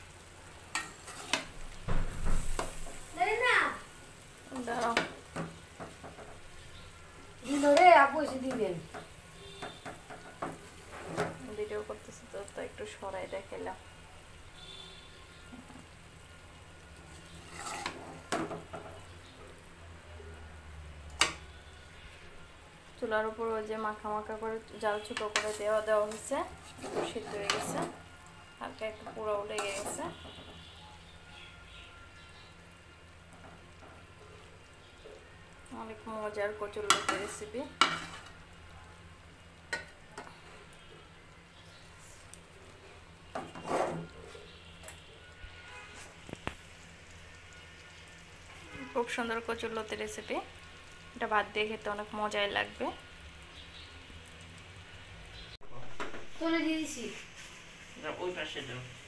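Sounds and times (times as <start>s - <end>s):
metal spatula scraping a pot: 0.7s - 1.6s, 7.4s - 9.9s, 10.6s - 11.4s, 17.1s - 18.6s, 25.0s - 28.1s, 29.4s - 30.5s, 36.9s - 38.4s, 43.3s - 46.4s
scraping rustle: 17.3s - 18.3s, 25.4s - 28.0s, 43.4s - 44.5s.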